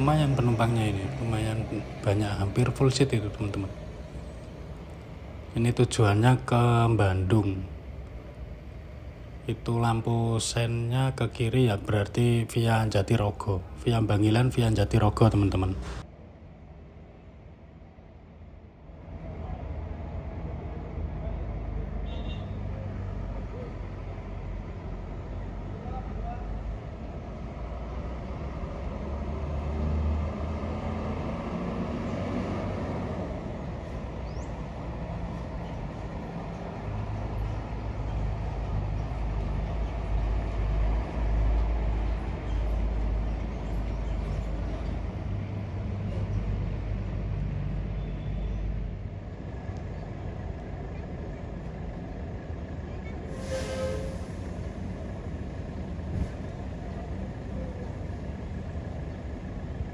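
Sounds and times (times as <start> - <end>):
bus diesel engine rumbling: 0.0 - 59.9
short air hiss: 53.3 - 54.6.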